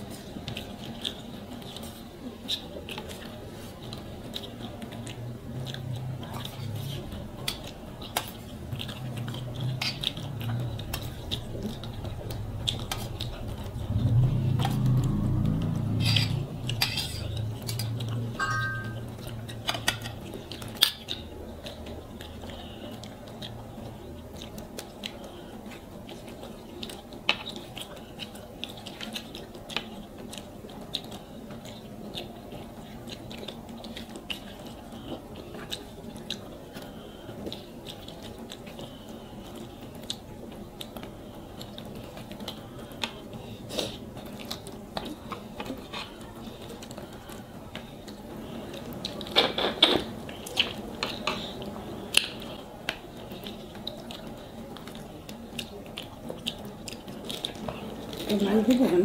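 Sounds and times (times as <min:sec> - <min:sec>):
chewing and mouth clicks: 0:00.0 - 0:59.0
steel spoon clinking on dish: 0:18.4 - 0:19.1.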